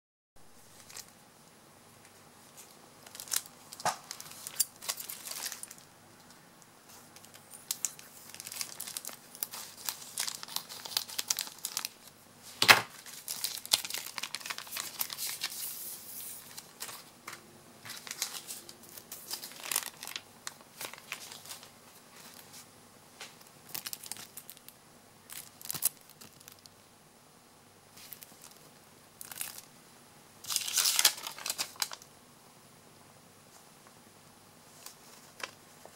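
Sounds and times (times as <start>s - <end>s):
plastic packaging crinkling: 0.6s - 1.2s, 2.5s - 5.9s, 6.9s - 22.6s, 23.4s - 26.7s, 28.0s - 29.7s, 30.4s - 32.1s.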